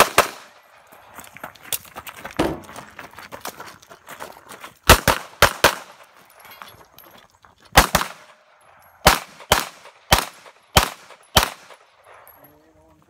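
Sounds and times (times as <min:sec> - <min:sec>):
pistol shots: 0:00.0 - 0:00.6, 0:04.9 - 0:06.1, 0:07.8 - 0:08.4, 0:09.0 - 0:11.9.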